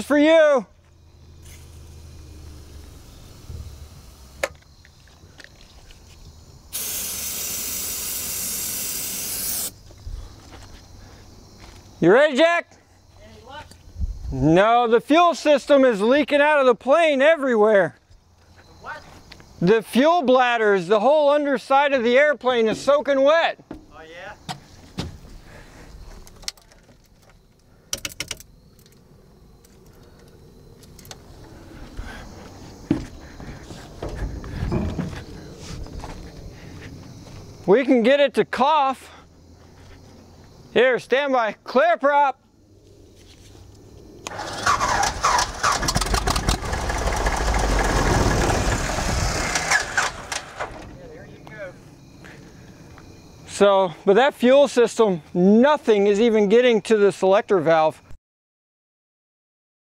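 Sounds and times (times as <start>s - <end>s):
aerosol spray can hissing: 6.7s - 9.8s.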